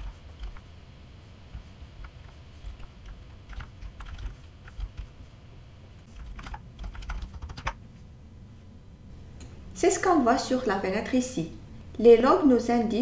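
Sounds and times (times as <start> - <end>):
typing on computer keyboard: 2.1 - 5.1, 6.1 - 7.8.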